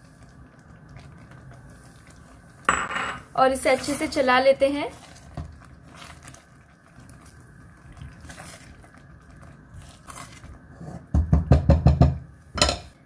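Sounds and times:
spoon stirring thick gravy: 0.6 - 2.4, 3.5 - 11.1
spoon knocking against pan: 11.1 - 12.9.

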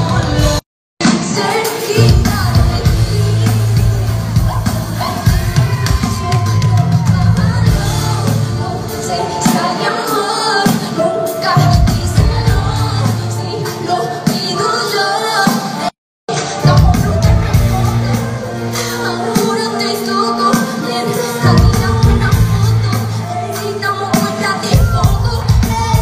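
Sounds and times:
crowd shouting and singing along: 0.0 - 26.0
live pop band with electric bass: 0.0 - 26.0
woman singing into a microphone: 0.0 - 26.0.

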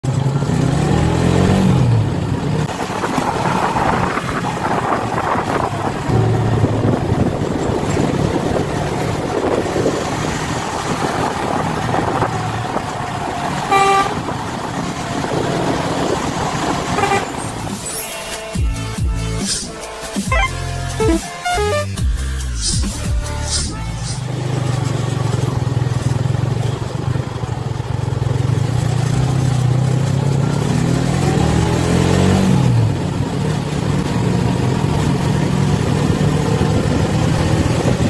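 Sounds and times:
traffic engine and road noise: 0.0 - 38.0
short horn toot: 17.0 - 17.5, 20.3 - 22.0.

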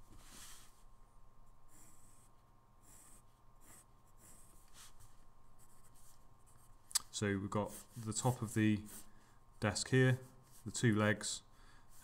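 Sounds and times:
pencil drawing on paper: 1.7 - 6.6, 7.7 - 9.1.

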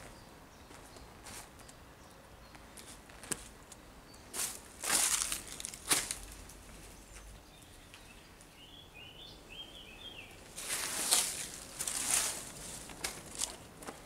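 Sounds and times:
footsteps scuffing on dry leaves: 4.3 - 6.4, 10.4 - 14.0.

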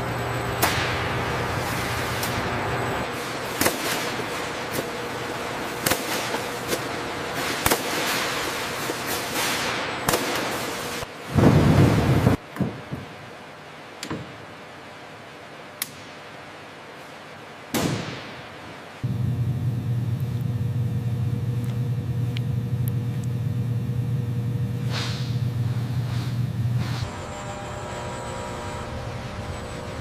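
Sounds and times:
low mechanical hum: 0.0 - 30.0.

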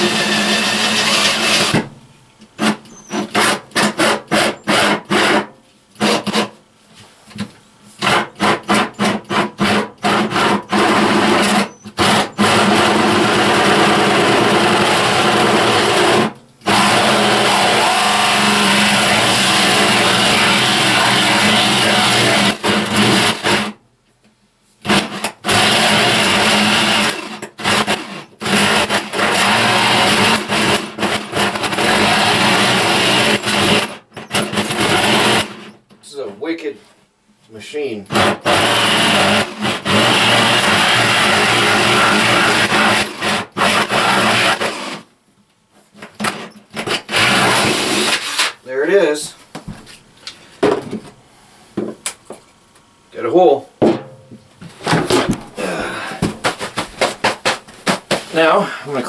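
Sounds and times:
power drill boring wood: 16.7 - 23.6, 24.9 - 35.8, 38.4 - 45.0, 46.2 - 46.5.

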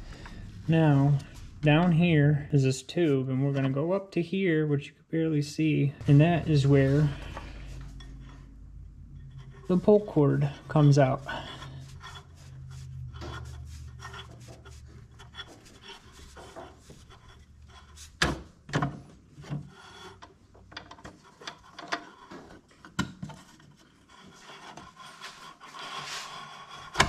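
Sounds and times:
rope scraping against engine parts: 6.0 - 18.3, 23.4 - 27.0.

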